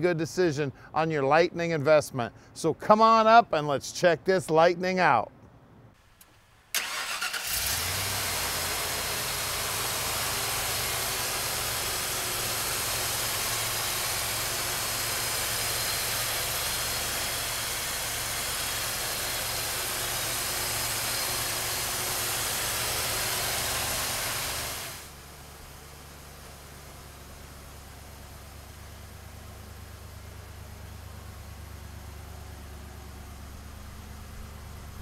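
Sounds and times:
strong even hiss: 0:06.3 - 0:25.2
car engine idling: 0:06.8 - 0:35.0.

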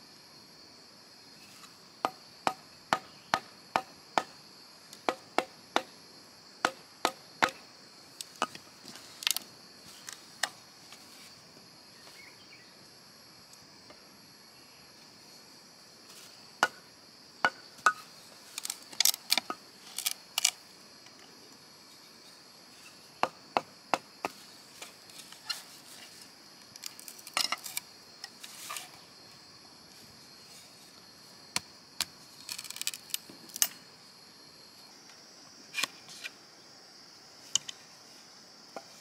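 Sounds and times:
blade chopping bamboo: 0:05.0 - 0:05.9, 0:06.6 - 0:07.6.

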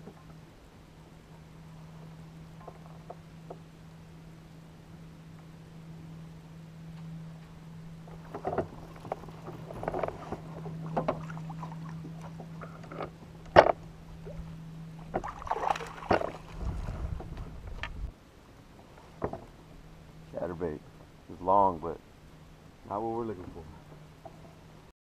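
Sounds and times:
steady low hum: 0:00.0 - 0:24.9
water splashing: 0:08.1 - 0:12.6, 0:14.1 - 0:17.4.

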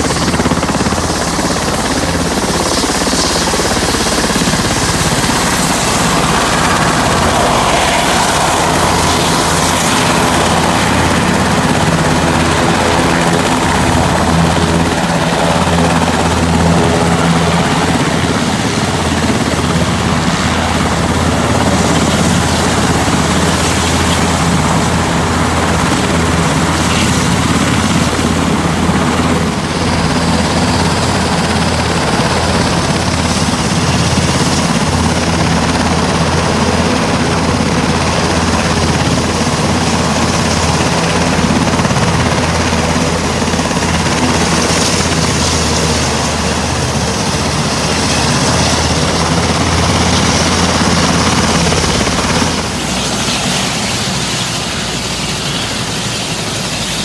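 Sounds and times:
helicopter rotor beat: 0:00.0 - 0:57.0
turbine noise: 0:00.0 - 0:57.0.

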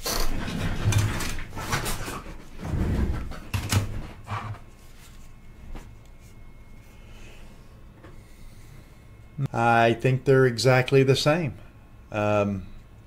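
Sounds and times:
rustling and handling objects: 0:00.3 - 0:08.6.

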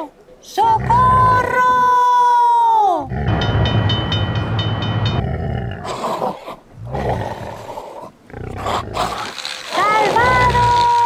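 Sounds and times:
big cats roaring: 0:03.1 - 0:03.5, 0:05.1 - 0:09.4
rapid rhythmic ringing: 0:03.2 - 0:05.3.

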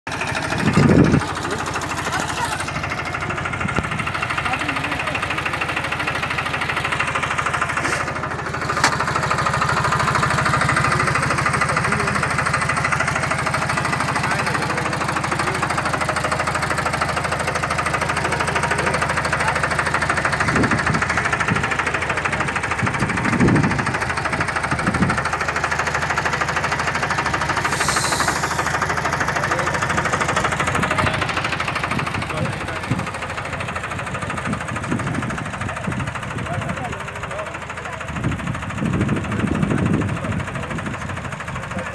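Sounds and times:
tractor diesel engine idling: 0:00.1 - 0:41.9.

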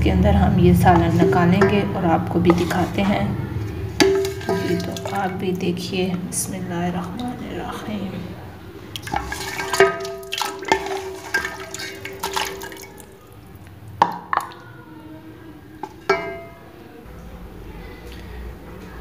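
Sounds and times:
liquid pouring and splashing: 0:03.8 - 0:05.5, 0:08.9 - 0:13.4
ladle clinking on ceramic bowl: 0:04.0 - 0:05.4, 0:09.1 - 0:13.1, 0:15.8 - 0:16.7.

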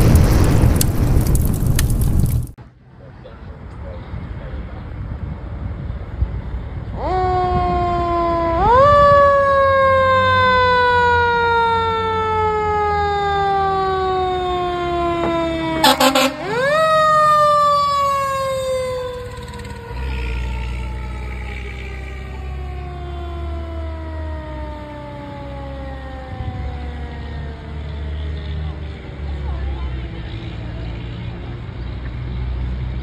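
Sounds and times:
fire engine siren: 0:06.9 - 0:29.1
air horn blasts: 0:15.7 - 0:17.0.

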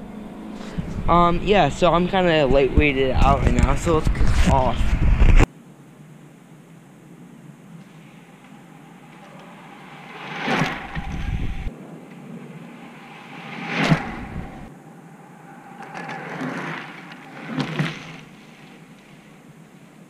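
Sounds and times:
road bike rushing past: 0:07.9 - 0:19.6.

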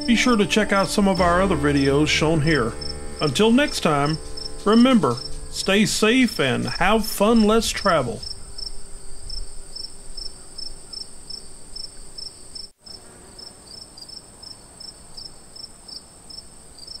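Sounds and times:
crickets trilling and chirping: 0:03.9 - 0:17.0.

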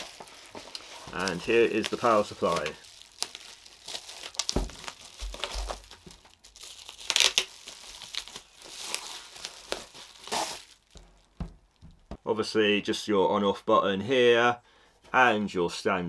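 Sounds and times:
bubble wrap crinkling: 0:00.0 - 0:12.2
dull low bumps: 0:11.0 - 0:12.3.

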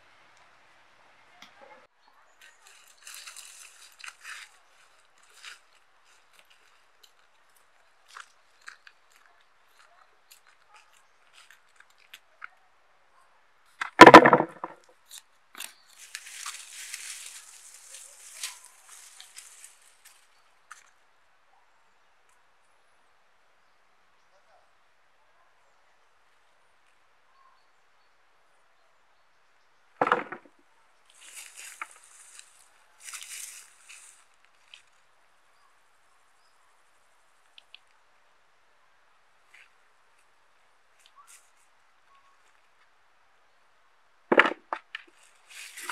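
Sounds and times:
dry vines and leaves rustling: 0:02.3 - 0:12.5, 0:14.8 - 0:21.0, 0:30.5 - 0:38.0, 0:39.4 - 0:42.8, 0:44.9 - 0:45.9
fingers scratching dry earth: 0:02.5 - 0:12.1, 0:15.1 - 0:20.2
potatoes dropped into plastic bucket: 0:30.0 - 0:30.5.

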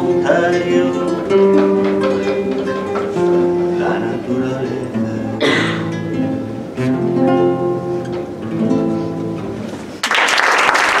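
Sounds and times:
acoustic guitar strumming chords: 0:00.0 - 0:10.0
audience applause: 0:10.0 - 0:11.0.

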